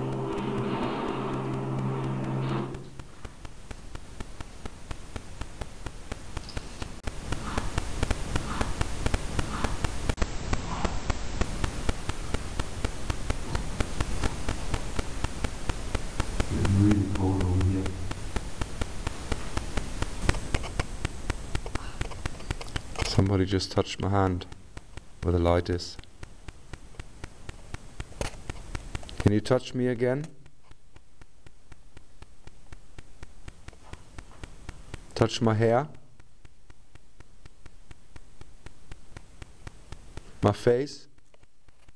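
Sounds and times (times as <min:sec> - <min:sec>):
aero engine droning: 0:00.0 - 0:03.0
crackling rush with hum: 0:00.0 - 0:41.9.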